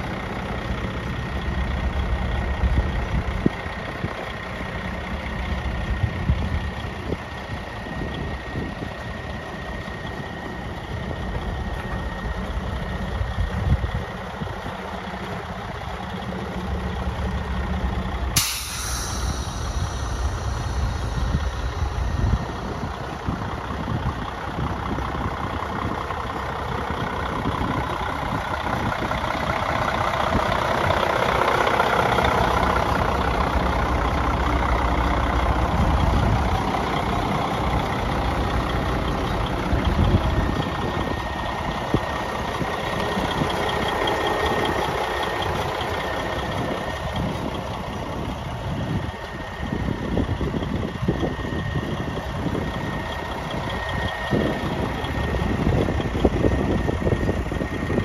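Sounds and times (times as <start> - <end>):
diesel truck engine idling: 0.0 - 58.0
sharp air hiss: 18.4 - 23.9.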